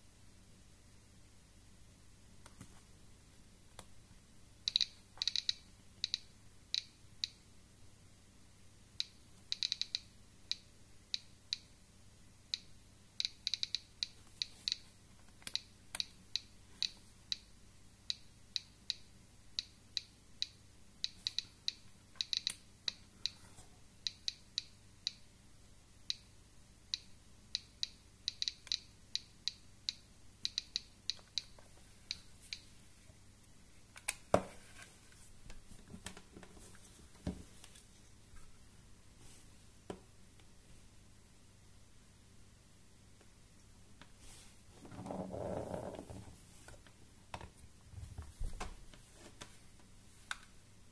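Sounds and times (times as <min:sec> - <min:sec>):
geiger counter clicking: 0:04.6 - 0:07.4, 0:09.0 - 0:11.8, 0:12.5 - 0:17.5, 0:18.1 - 0:23.4, 0:24.0 - 0:25.3, 0:26.1 - 0:32.7.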